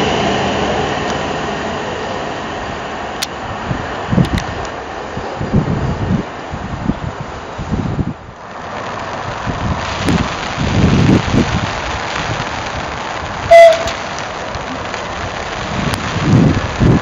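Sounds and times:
train horn toot: 13.5s - 14.0s.

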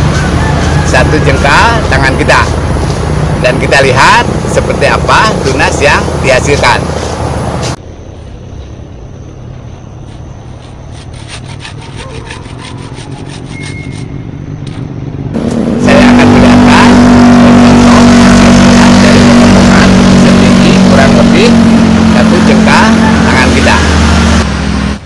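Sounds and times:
engine-like drone: 0.0s - 25.0s
hand saw cutting trunk: 10.5s - 14.1s.

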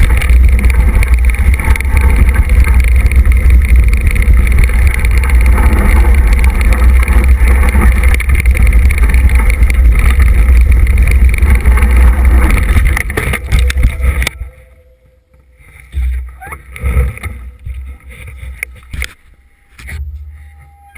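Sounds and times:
wind buffeting: 0.0s - 14.8s
trail rattle: 0.0s - 20.9s.

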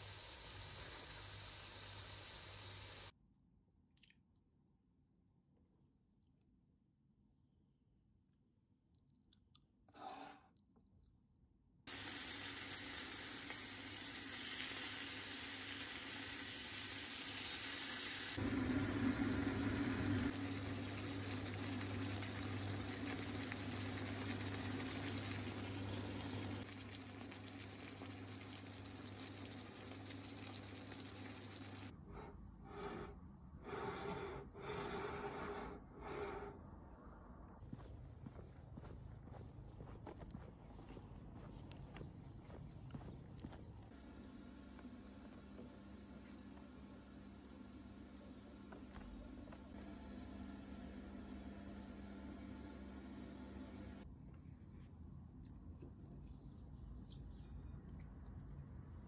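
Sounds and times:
food hissing in frying pan: 0.0s - 3.1s, 11.9s - 31.9s.

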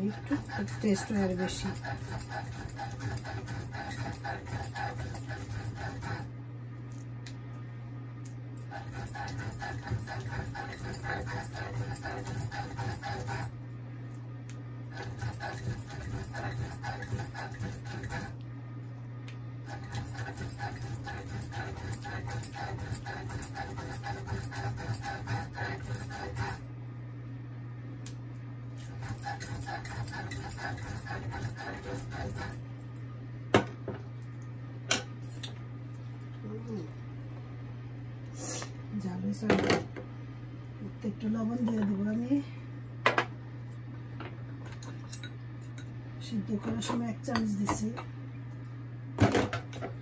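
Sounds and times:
stone roller scraping on stone: 0.0s - 6.3s, 8.7s - 13.5s, 14.9s - 18.4s, 19.7s - 26.6s, 28.8s - 32.6s
steady low hum: 0.0s - 50.0s.

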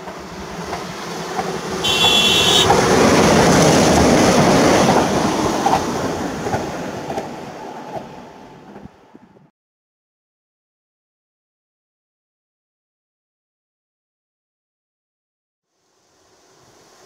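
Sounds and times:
train passing rumble: 0.0s - 9.5s
high train horn blast: 1.8s - 3.3s.

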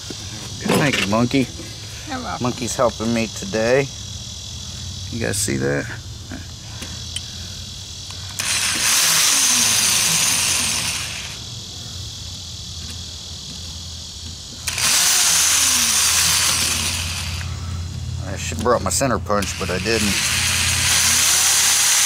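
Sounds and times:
electric drill drilling metal: 8.1s - 11.4s, 14.6s - 17.6s, 18.3s - 22.0s.

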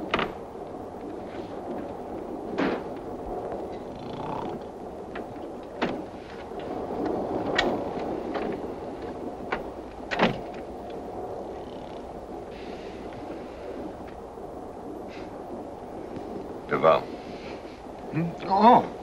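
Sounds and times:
train carriage rumbling: 0.0s - 19.0s.

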